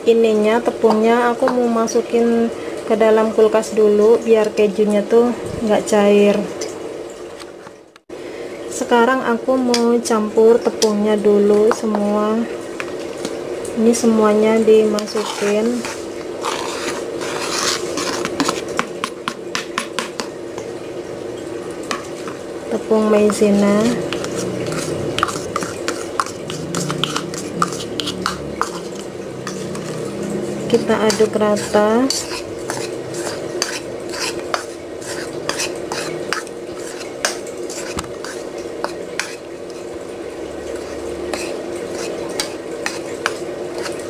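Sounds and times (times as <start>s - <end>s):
metal spoon scraping plastic plate: 14.9s - 20.3s, 23.3s - 30.1s, 30.7s - 39.8s, 40.8s - 44.0s
spoon tapping plate: 24.1s - 30.0s.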